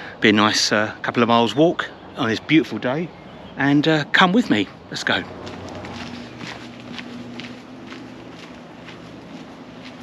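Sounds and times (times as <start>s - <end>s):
footsteps on dirt path: 4.4s - 10.0s
low hum: 4.7s - 10.0s.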